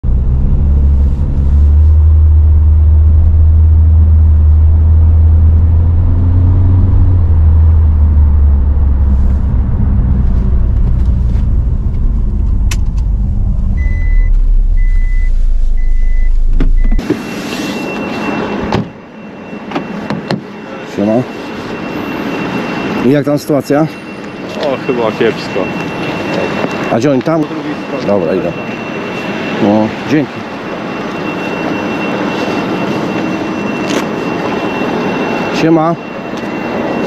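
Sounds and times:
road and engine rumble in car: 0:00.0 - 0:17.6
warning chime beeps: 0:13.2 - 0:37.0.

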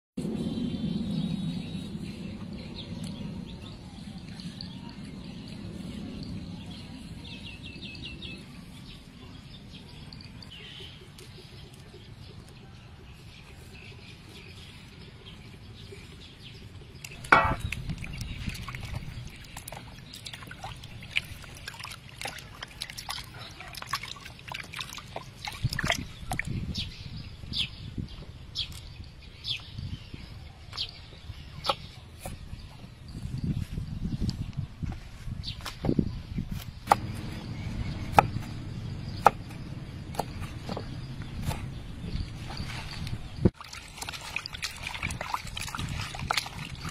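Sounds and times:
water sloshing and splashing: 0:16.9 - 0:26.8, 0:40.1 - 0:46.9.

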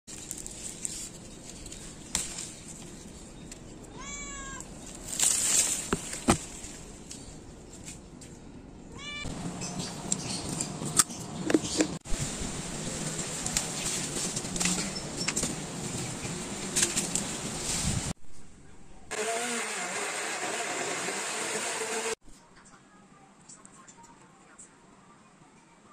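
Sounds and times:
rustling: 0:00.1 - 0:08.4, 0:12.0 - 0:18.5
cat meowing: 0:03.9 - 0:04.7, 0:08.9 - 0:09.3.

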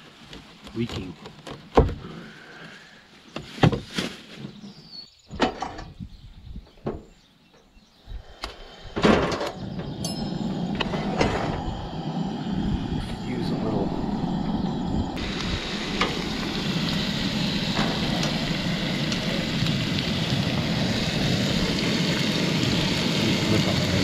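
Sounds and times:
skillet hissing: 0:08.1 - 0:24.0.

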